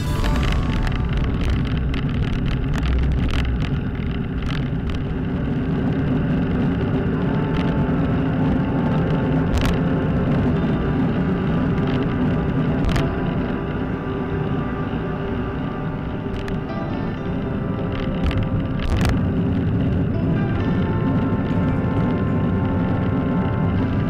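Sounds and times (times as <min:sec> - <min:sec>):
road rumble: 0:00.0 - 0:24.0
bicycle rattles and knocks: 0:01.2 - 0:07.7.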